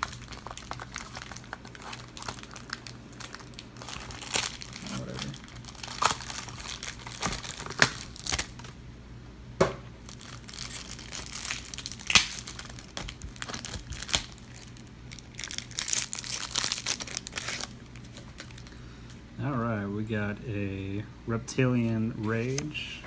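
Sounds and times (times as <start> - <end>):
foil wrapper crinkling: 0.0 - 8.8, 10.0 - 18.8.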